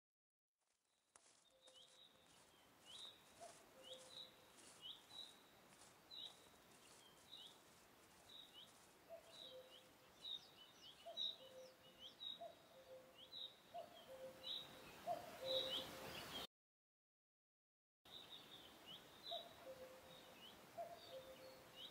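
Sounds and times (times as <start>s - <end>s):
birds chirping: 0.9s - 16.5s, 18.1s - 21.9s.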